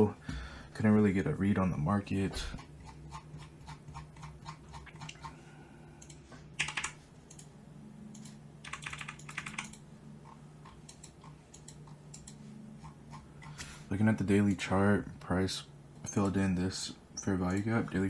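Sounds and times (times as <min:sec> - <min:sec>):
steady low hum: 0:00.0 - 0:18.0
keyboard and mouse clicking: 0:06.0 - 0:07.5, 0:08.1 - 0:13.6.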